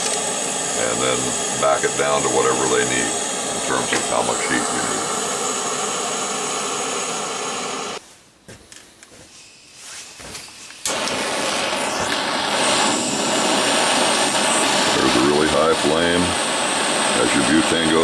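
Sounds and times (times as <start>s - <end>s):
butane torch jet hiss: 0.0s - 8.0s, 9.3s - 18.0s.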